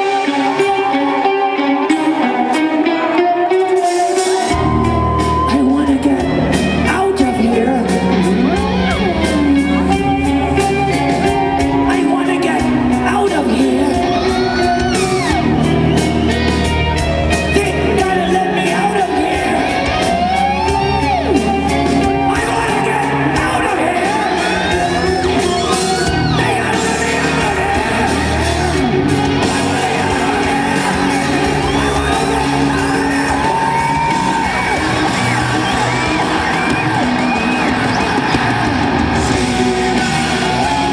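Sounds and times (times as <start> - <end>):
live rock band playing: 0.0 - 40.9
man singing and shouting: 4.0 - 15.6, 17.3 - 36.4.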